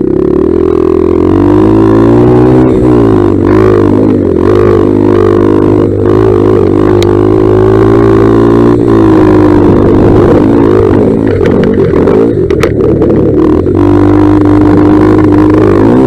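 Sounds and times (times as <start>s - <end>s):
dirt bike engine running: 0.0s - 16.0s
sharp ticks: 9.6s - 16.0s.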